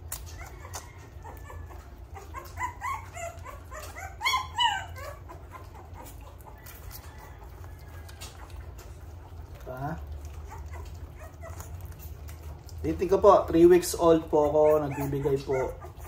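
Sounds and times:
puppy whimpering: 0:00.0 - 0:16.0.

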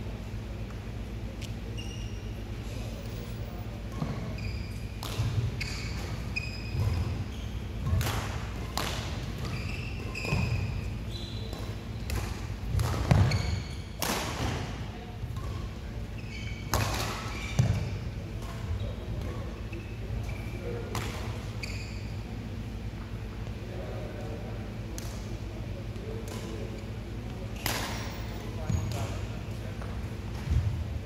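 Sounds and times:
shoe squeaks on court floor: 0:01.7 - 0:02.4, 0:03.9 - 0:08.0, 0:09.4 - 0:12.0, 0:13.1 - 0:14.0, 0:16.1 - 0:18.1, 0:21.5 - 0:22.3, 0:27.6 - 0:29.3
racket striking shuttlecock: 0:14.0 - 0:14.6, 0:16.7 - 0:17.2, 0:27.6 - 0:28.1.

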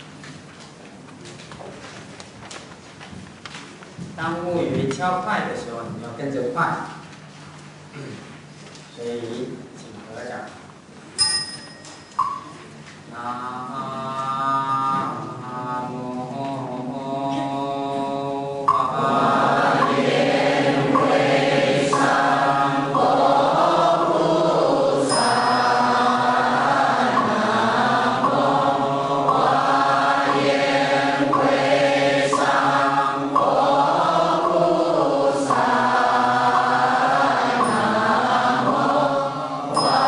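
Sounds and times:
congregation chanting in unison: 0:13.1 - 0:40.0.

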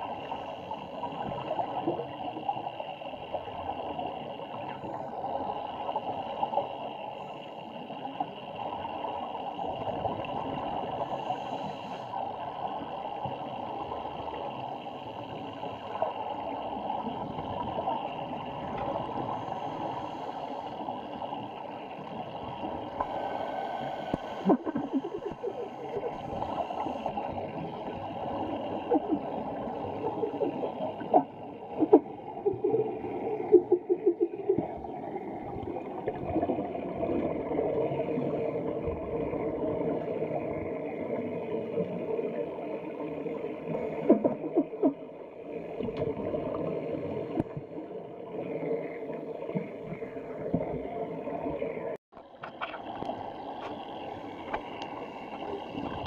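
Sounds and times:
underwater air bubbles rushing: 0:21.3 - 0:56.0.

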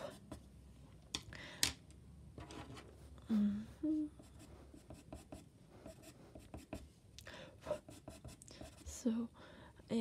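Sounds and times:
pencil scratching on paper: 0:00.0 - 0:00.5, 0:04.2 - 0:07.0, 0:07.6 - 0:09.0.

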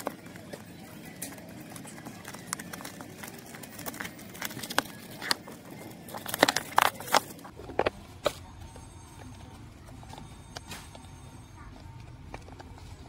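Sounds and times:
plastic shrink wrap crackling: 0:00.0 - 0:07.9.

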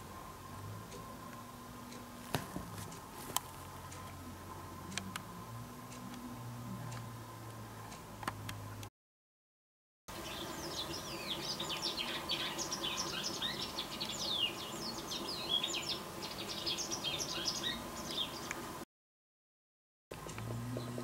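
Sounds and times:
bird chirps and twitters: 0:10.1 - 0:18.5.

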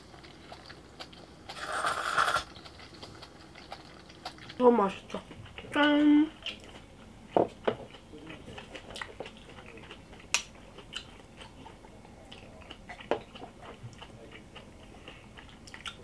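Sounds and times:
chewing: 0:00.0 - 0:16.0
sipping: 0:01.5 - 0:02.7.

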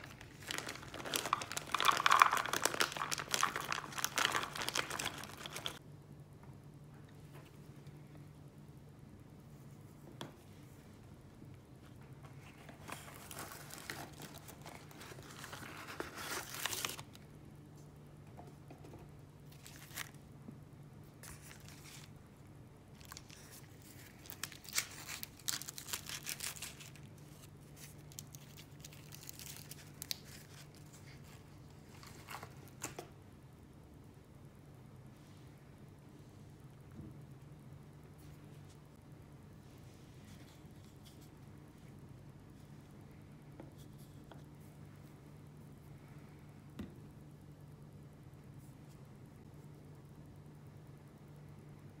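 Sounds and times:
plastic packaging crinkling: 0:00.0 - 0:05.8, 0:12.8 - 0:17.2, 0:22.9 - 0:31.3
low steady hum: 0:00.0 - 0:52.0.

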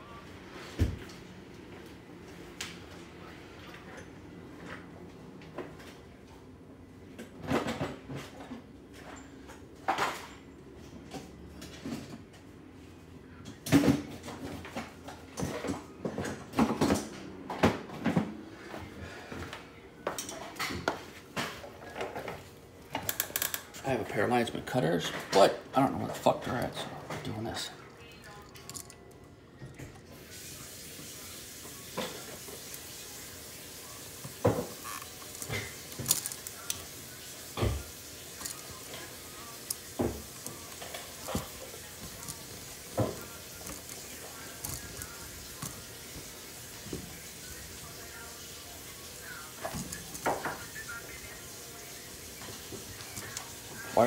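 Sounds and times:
hand tools clicking and rattling: 0:28.5 - 0:29.8, 0:34.7 - 0:36.9, 0:38.3 - 0:45.8.

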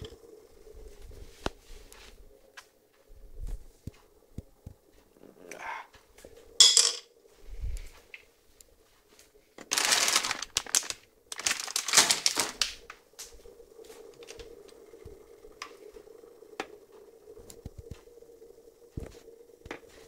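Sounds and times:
faint steady hum: 0:00.0 - 0:20.0
packaging crinkling: 0:09.6 - 0:12.9.

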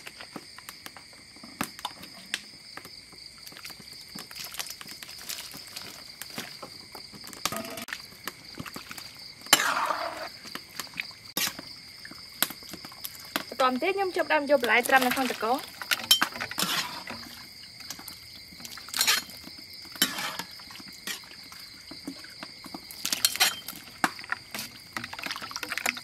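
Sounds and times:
crickets chirring: 0:00.0 - 0:26.0.

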